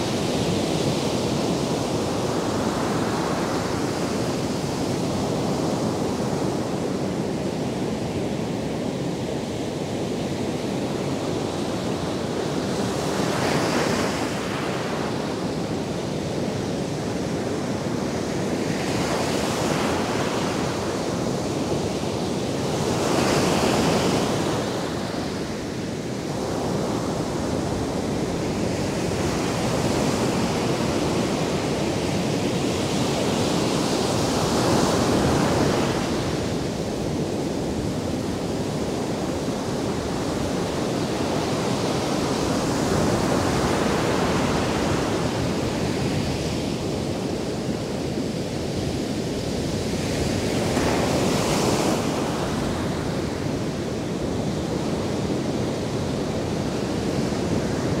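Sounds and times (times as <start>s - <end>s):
ocean waves breaking on beach: 0.0s - 58.0s.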